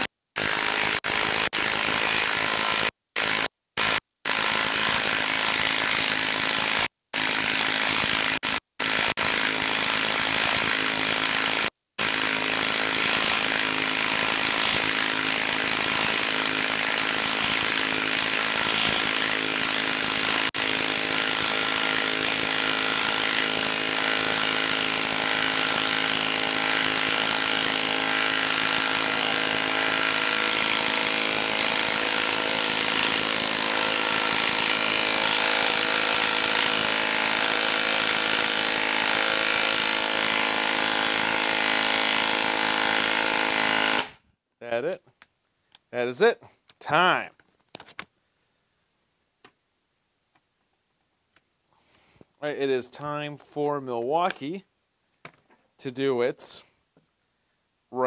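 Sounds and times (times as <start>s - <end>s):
impact wrench hammering: 0.0s - 44.2s.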